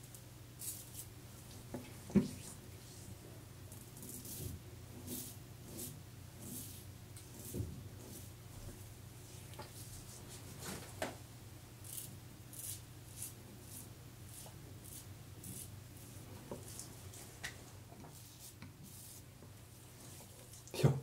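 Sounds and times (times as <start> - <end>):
razor scraping stubble: 11.8 - 15.7.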